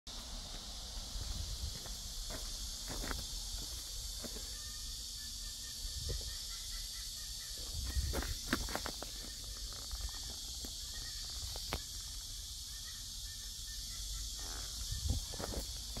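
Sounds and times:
steady high hiss: 0.1 - 16.0
wind rumble on microphone: 1.1 - 2.3, 5.9 - 6.4, 7.6 - 8.8, 14.8 - 16.0.

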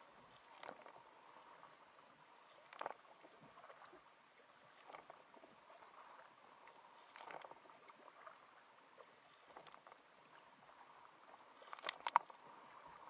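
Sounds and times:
paddles splashing in water: 0.0 - 1.8, 2.4 - 13.0.

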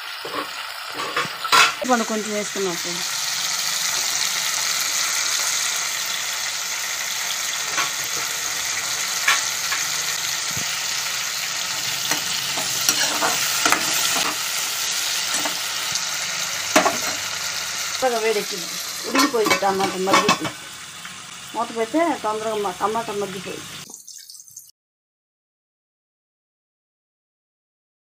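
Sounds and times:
food sizzling in hot oil: 0.0 - 24.7
spoon scraping a pan: 0.2 - 1.9, 7.4 - 11.0, 11.6 - 17.6, 18.4 - 20.8.

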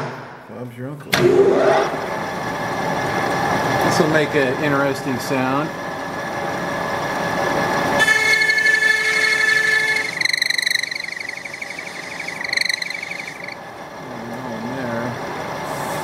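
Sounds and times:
lathe running: 1.2 - 16.0
lathe tool squealing on brass: 8.0 - 13.6.

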